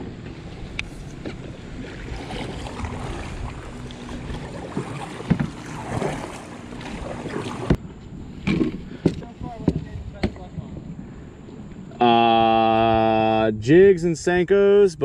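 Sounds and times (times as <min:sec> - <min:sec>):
kayak paddle splashing water: 0:00.0 - 0:07.8
wind on microphone: 0:00.0 - 0:13.1.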